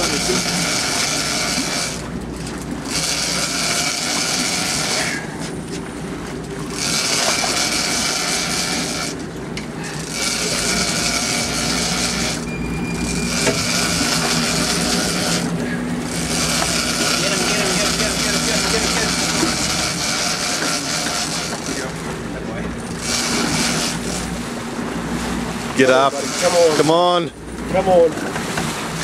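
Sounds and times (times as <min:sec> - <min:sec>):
fishing reel drag buzzing: 0:00.0 - 0:02.1, 0:02.8 - 0:05.5, 0:06.6 - 0:09.2, 0:10.0 - 0:21.9, 0:22.9 - 0:24.3
boat engine hum: 0:00.0 - 0:29.0.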